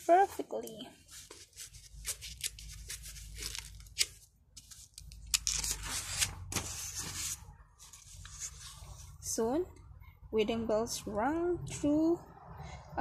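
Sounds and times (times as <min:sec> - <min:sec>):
book pages rustling and turning: 0:00.0 - 0:09.2.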